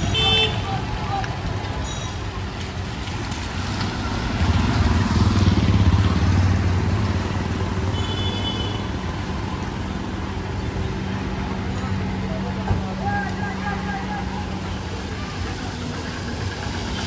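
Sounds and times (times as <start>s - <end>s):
vehicle engine passing by: 3.0s - 7.9s.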